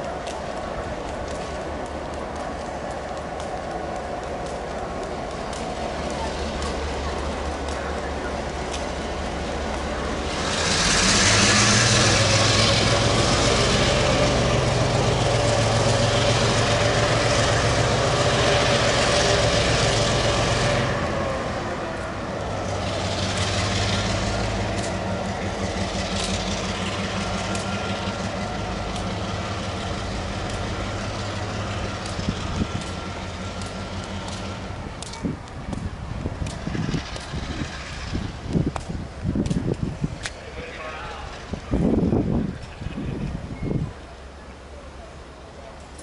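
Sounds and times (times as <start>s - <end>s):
scattered clicks: 0.0s - 8.9s
diesel locomotive engine drone: 0.0s - 46.0s.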